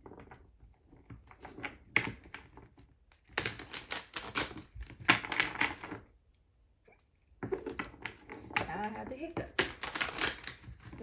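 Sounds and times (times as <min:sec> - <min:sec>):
cards being shuffled: 0:03.1 - 0:06.0, 0:09.6 - 0:11.0.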